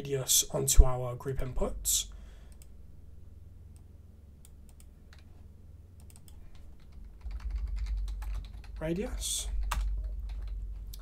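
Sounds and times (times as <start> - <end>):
steady low hum: 0.0 - 11.0
keyboard and mouse clicks: 4.4 - 5.3, 6.0 - 8.7.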